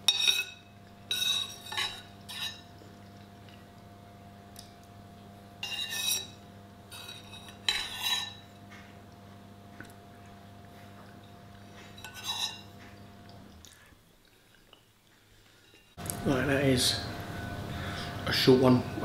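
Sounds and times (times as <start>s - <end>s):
metal spoon scraping a bowl: 0.1s - 2.7s, 5.6s - 8.5s, 11.9s - 12.7s.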